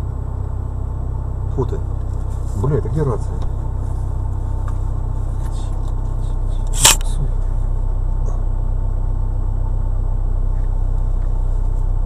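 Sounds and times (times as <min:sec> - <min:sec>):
vehicle engine idling: 0:00.0 - 0:12.0
sharp click: 0:06.6 - 0:07.2.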